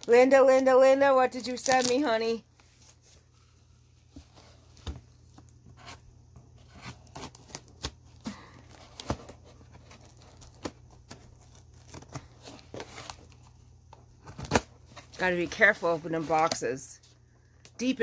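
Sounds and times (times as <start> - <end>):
tape tearing: 1.4 - 2.2, 14.2 - 14.8.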